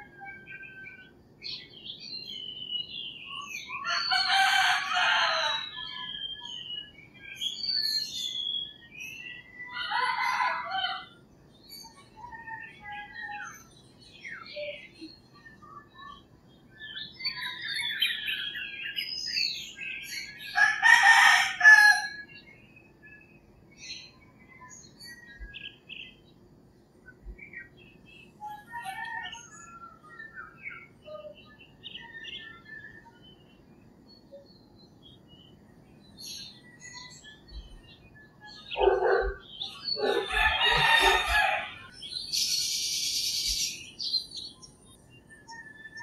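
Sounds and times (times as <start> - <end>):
small birds chirping: 0.0 - 46.0
rooster crowing: 3.9 - 5.6, 20.6 - 22.2, 40.0 - 41.9.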